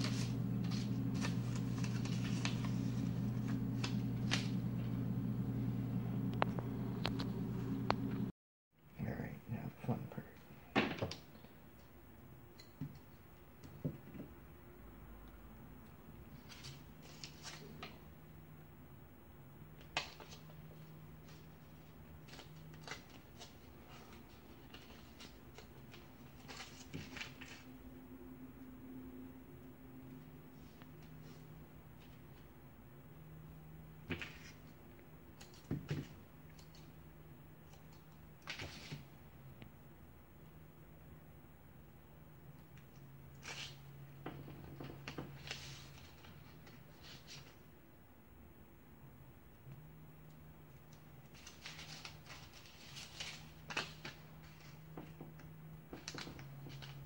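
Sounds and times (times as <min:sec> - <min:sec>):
paper rustling and crinkling: 0:00.0 - 0:04.9, 0:16.4 - 0:18.0, 0:19.8 - 0:27.7, 0:38.4 - 0:39.1, 0:44.4 - 0:47.6, 0:51.2 - 0:55.2, 0:55.9 - 0:57.0
steady low hum: 0:00.0 - 0:10.7.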